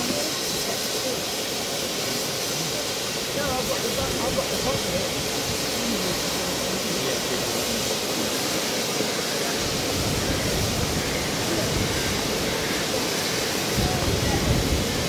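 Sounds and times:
steam venting hiss: 0.0s - 15.0s
wind rumbling on microphone: 9.4s - 15.0s.

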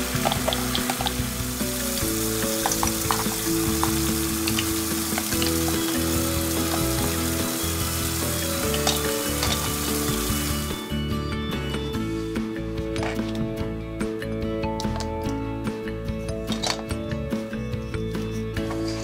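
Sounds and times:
faucet water splashing: 0.0s - 10.8s.

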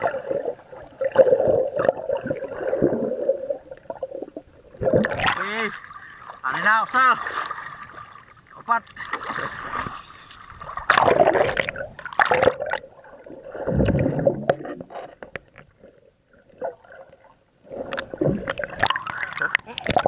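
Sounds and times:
water bubbling: 0.0s - 6.4s, 7.2s - 14.9s, 15.7s - 20.0s
water splashing and gurgling: 0.0s - 20.0s
underwater clicks: 17.9s - 20.0s.

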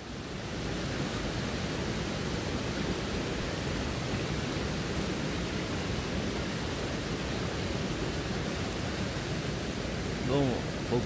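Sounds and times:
waterfall and stream rushing: 0.0s - 11.0s.

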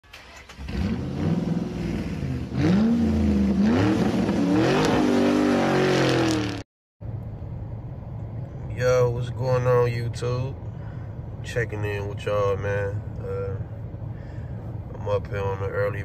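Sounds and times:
car engine revving: 0.4s - 6.6s
low engine hum: 0.6s - 16.0s.

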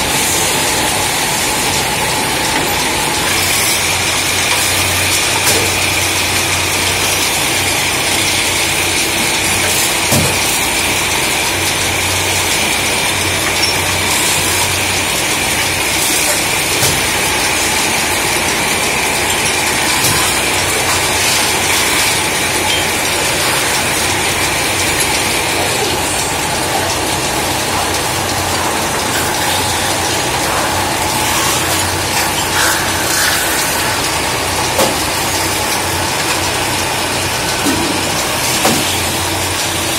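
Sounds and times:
metal-spinning lathe running: 0.0s - 39.9s.

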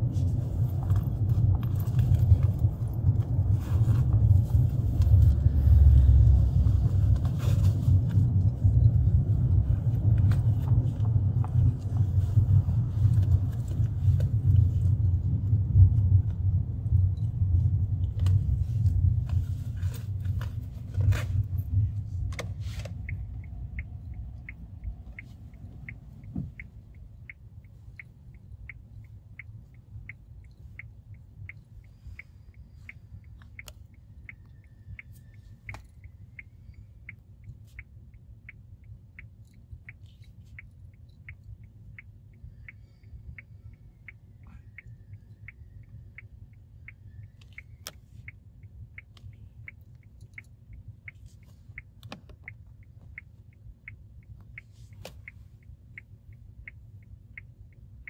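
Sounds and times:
car cabin road and engine rumble: 0.0s - 58.0s
light even ticking: 21.4s - 58.0s.

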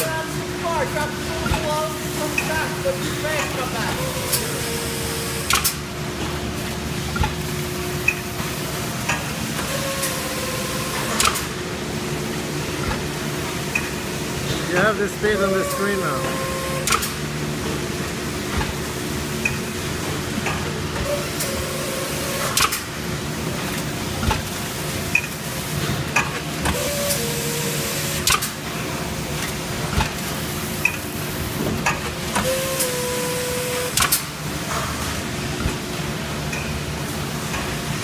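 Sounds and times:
machine droning hum: 0.0s - 38.0s.

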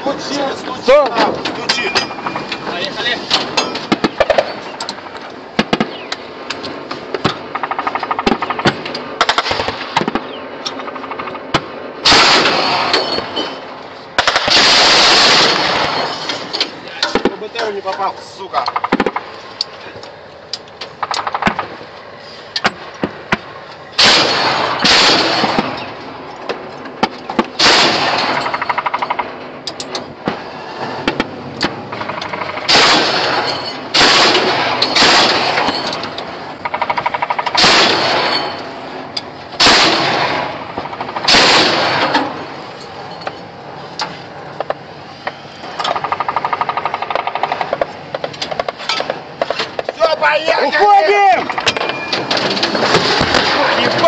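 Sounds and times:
anti-aircraft gun firing bursts: 7.4s - 12.9s, 14.2s - 16.0s, 21.0s - 21.8s, 24.0s - 25.8s, 27.5s - 29.4s, 31.9s - 35.8s, 36.6s - 38.4s, 39.6s - 42.4s, 45.9s - 48.7s.

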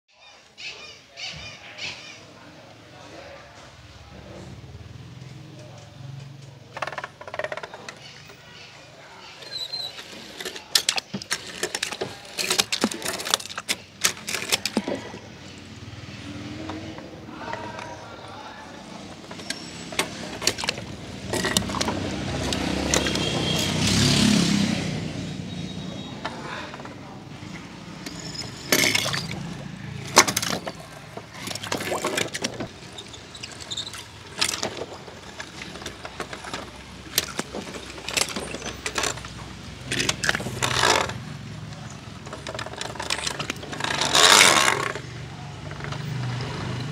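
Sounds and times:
toy cars clicking together: 9.4s - 15.3s, 19.1s - 24.0s, 28.0s - 46.9s.

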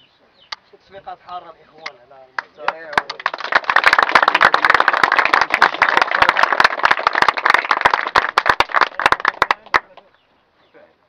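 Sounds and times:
crowd clapping: 1.8s - 10.2s.

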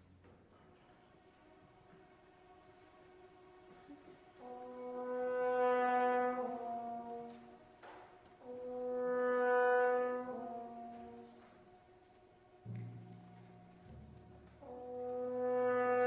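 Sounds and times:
brass instrument long notes: 0.8s - 16.0s.

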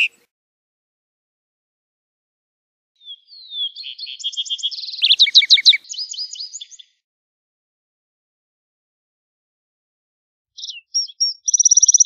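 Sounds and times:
sparrow singing trills: 3.0s - 7.0s, 10.6s - 12.0s.

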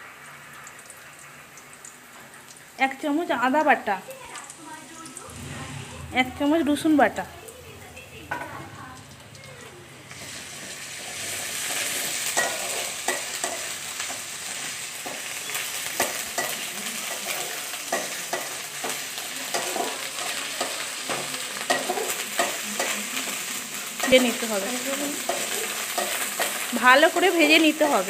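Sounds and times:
frying sizzle in oil: 0.0s - 28.0s
spatula scraping pan: 9.5s - 23.0s.

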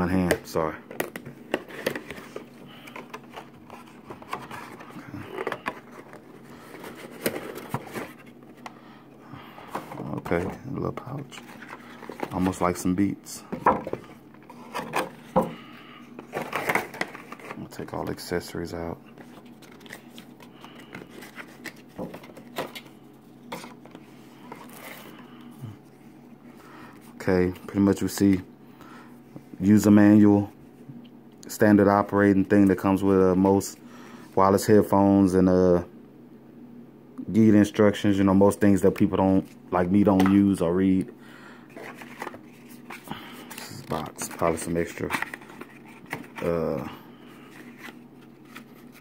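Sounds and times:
plastic packaging scraping and rustling: 1.1s - 8.6s, 9.6s - 12.9s, 41.7s - 46.8s, 47.4s - 49.0s.

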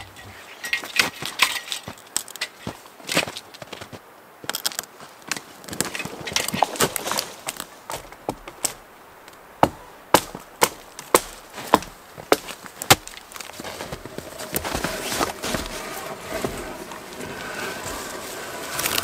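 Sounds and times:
wood crackling and rustling: 0.0s - 19.0s
axe chopping wood: 9.6s - 13.8s.

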